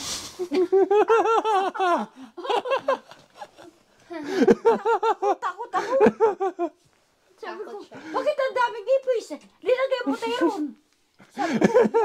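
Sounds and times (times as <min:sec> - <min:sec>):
people laughing: 0:00.5 - 0:06.8, 0:11.2 - 0:12.0.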